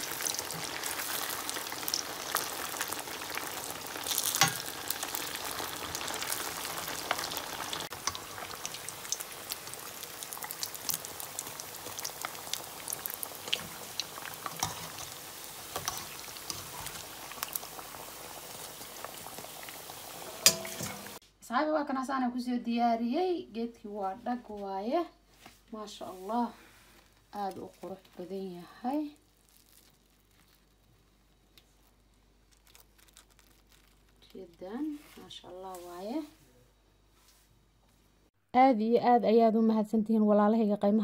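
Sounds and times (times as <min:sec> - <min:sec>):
food deep-frying in hot oil: 0:00.0 - 0:21.2, 0:27.3 - 0:36.3.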